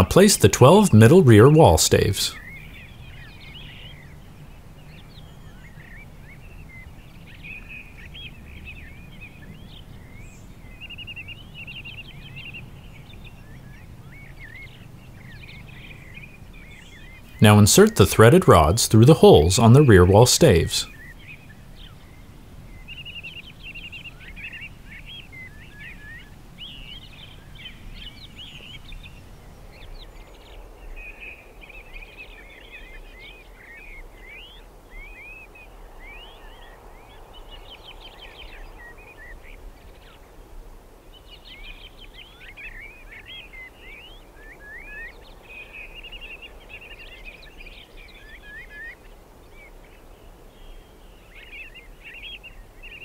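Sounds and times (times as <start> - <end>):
faint background noise: 0.0 - 53.0
songbirds chirping and warbling: 0.0 - 53.0.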